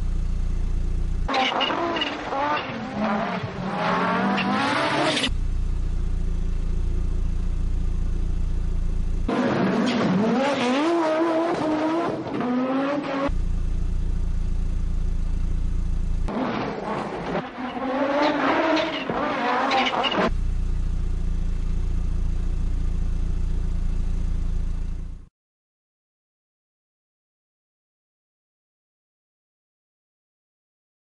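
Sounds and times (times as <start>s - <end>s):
rally car engine revving hard: 1.3s - 5.3s, 9.3s - 13.4s, 16.2s - 20.3s.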